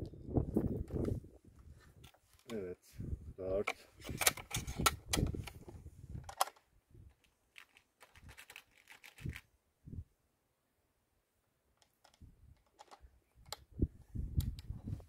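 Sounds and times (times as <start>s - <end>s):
air rifle clicks and knocks: 3.6s - 9.3s, 11.8s - 13.7s.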